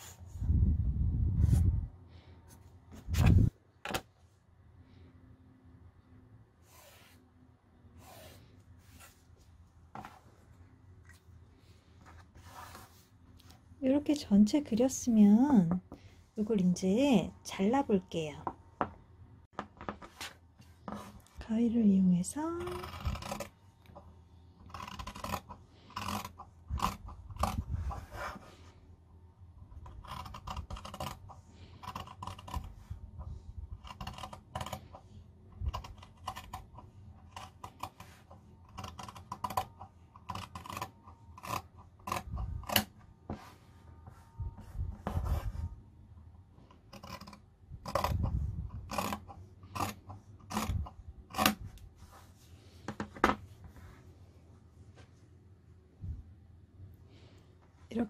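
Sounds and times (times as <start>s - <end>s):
scissors cutting fabric: 22.4s - 23.5s, 24.7s - 27.8s, 29.8s - 32.8s, 33.7s - 34.9s, 35.6s - 43.0s, 46.7s - 51.8s.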